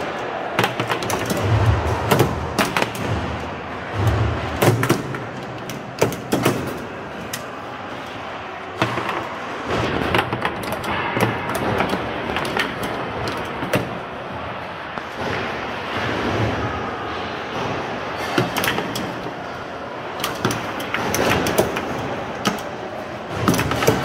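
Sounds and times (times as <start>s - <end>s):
steady background noise: 0.0s - 24.0s
foosball clacks and knocks: 0.6s - 7.5s, 8.8s - 14.0s, 17.6s - 19.4s, 20.2s - 24.0s.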